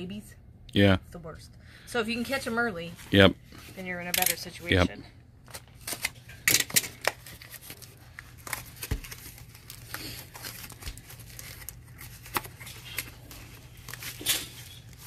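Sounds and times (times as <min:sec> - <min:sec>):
cardboard crinkling and tearing: 0:06.9 - 0:15.0.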